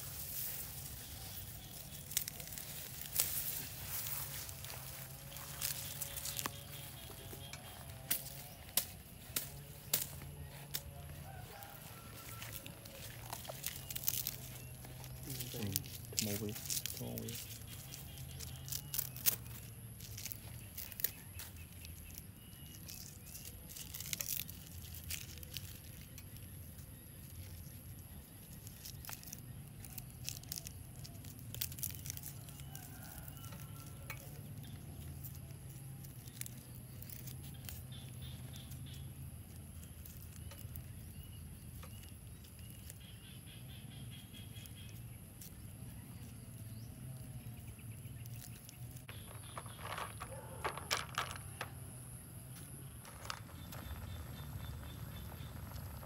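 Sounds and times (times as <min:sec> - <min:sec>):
leafy stalks rustling and snapping: 0:00.0 - 0:43.4, 0:44.3 - 0:51.8
steady low rumble: 0:51.6 - 0:56.0
faint bird chirps: 0:52.1 - 0:56.0.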